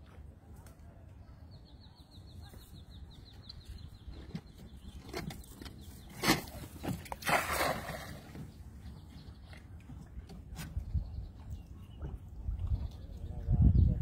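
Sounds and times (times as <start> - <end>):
net splashing into water: 6.2 - 8.4.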